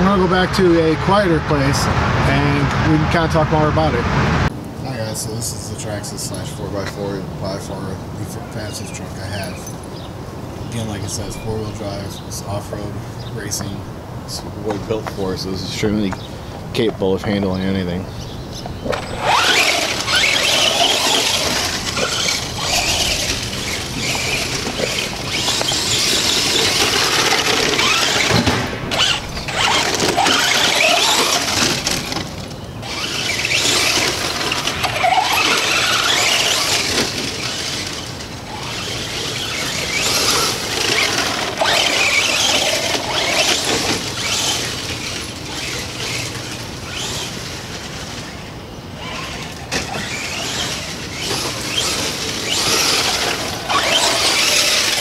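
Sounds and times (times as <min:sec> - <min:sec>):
toy truck electric motor whining: 0:18.9 - 0:55.0.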